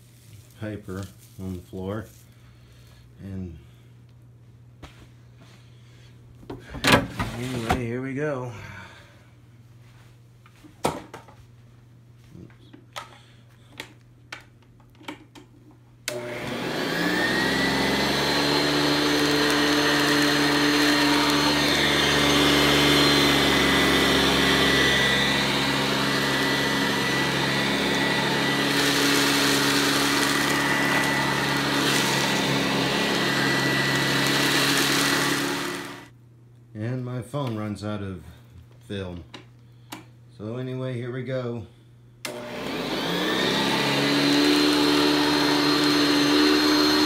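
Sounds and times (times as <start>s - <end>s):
upright vacuum cleaner running: 16.1s - 36.1s, 42.2s - 47.0s.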